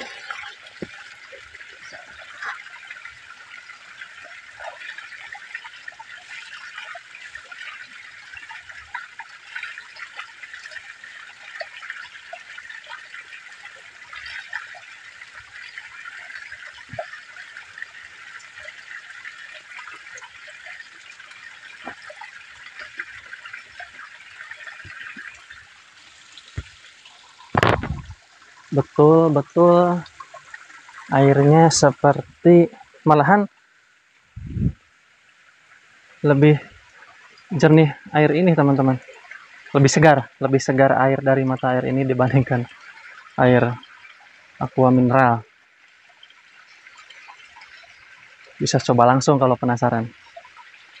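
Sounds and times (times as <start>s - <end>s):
spring water splashing on rock: 21.6s - 28.8s.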